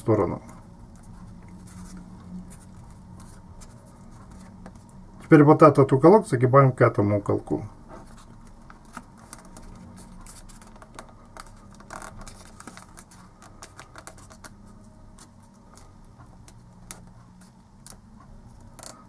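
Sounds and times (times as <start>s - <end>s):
faint low hum: 0.0s - 19.0s
paper crinkling: 8.0s - 18.0s.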